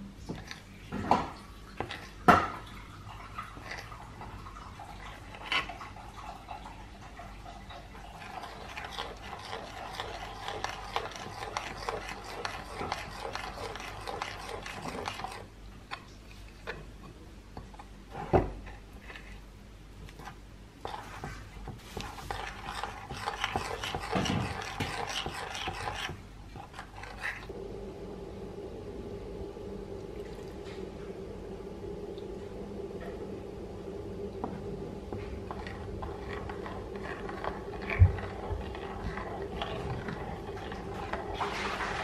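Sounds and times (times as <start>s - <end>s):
metal spoon scraping ceramic bowl: 8.2s - 15.5s, 20.8s - 27.5s, 35.5s - 42.0s.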